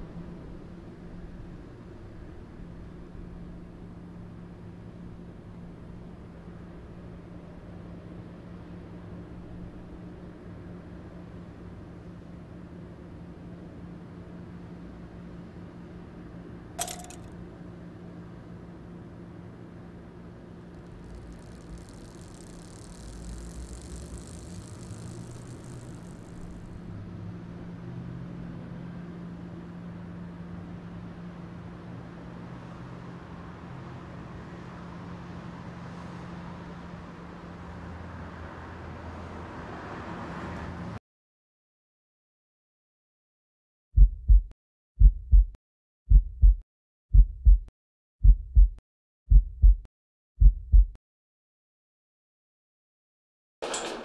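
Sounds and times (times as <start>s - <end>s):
low mechanical hum: 0.0s - 38.2s
heartbeat thumps: 44.0s - 51.0s.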